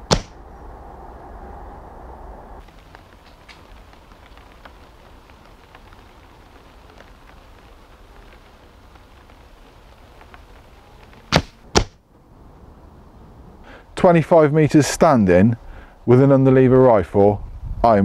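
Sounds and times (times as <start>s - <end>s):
air rifle firing cracks: 0.0s - 0.4s, 11.3s - 12.0s.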